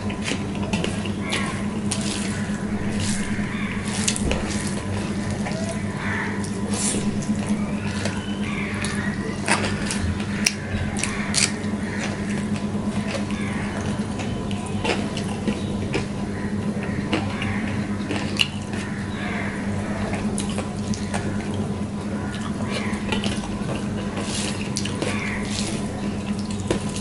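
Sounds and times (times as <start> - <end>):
chewing: 0.0 - 16.2, 16.8 - 19.0, 20.1 - 27.0
fingers squishing wet food: 0.0 - 16.2
low hum and hiss: 0.0 - 27.0.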